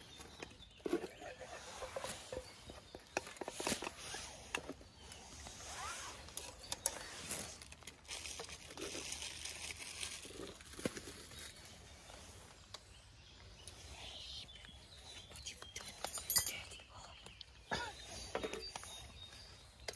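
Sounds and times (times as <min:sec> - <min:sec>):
food packaging rustling: 0:06.2 - 0:11.9.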